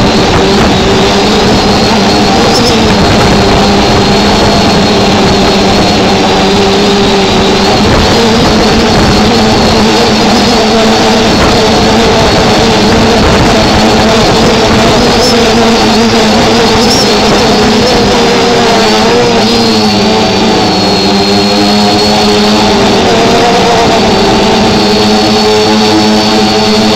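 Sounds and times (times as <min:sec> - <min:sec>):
drone propellers buzzing: 0:00.0 - 0:26.9
rough rushing noise: 0:00.0 - 0:26.9.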